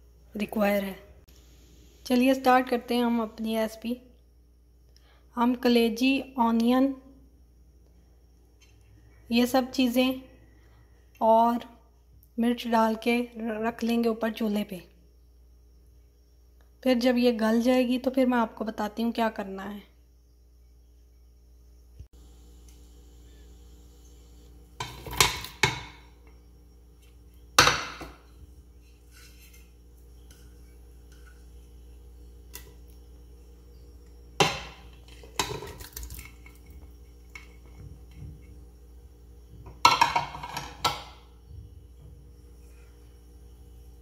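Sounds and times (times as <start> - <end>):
dishes clattering against metal pot: 39.7 - 41.1.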